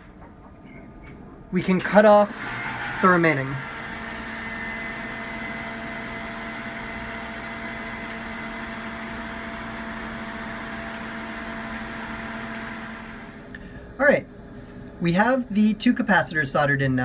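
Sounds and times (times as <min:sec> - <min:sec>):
machinery humming: 0:01.5 - 0:17.0.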